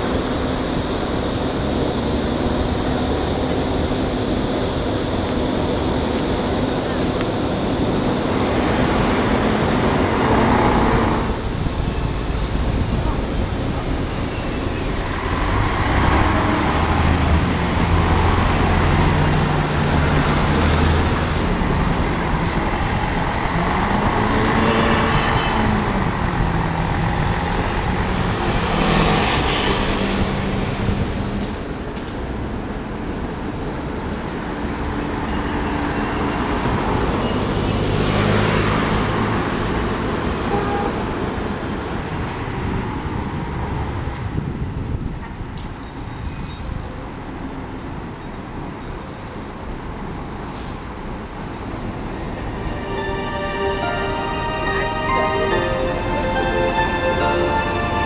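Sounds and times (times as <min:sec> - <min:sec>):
vehicles passing: 0:00.0 - 0:46.4, 0:48.8 - 0:58.0
bus diesel engines running: 0:00.0 - 0:58.0
engine revving: 0:08.8 - 0:11.4, 0:15.2 - 0:31.4.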